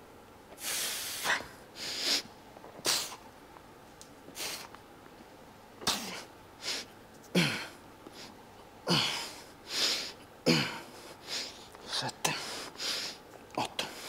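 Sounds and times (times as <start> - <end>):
man breathing hard: 0.6 - 3.2, 6.6 - 13.2.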